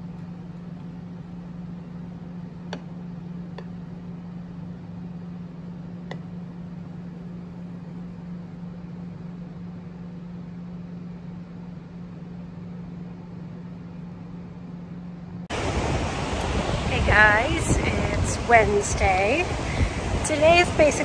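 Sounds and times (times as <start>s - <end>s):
low machine hum: 0.0s - 21.0s.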